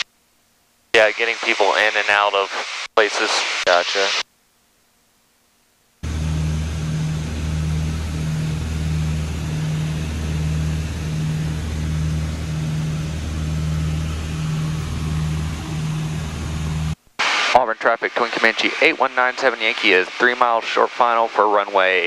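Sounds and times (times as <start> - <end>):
aircraft engines droning in flight: 6.0 - 17.0.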